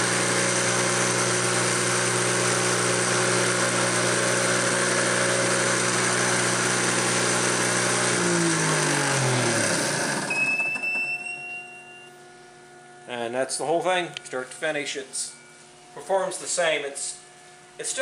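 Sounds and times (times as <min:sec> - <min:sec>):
electric motor spinning down: 0:00.0 - 0:10.9.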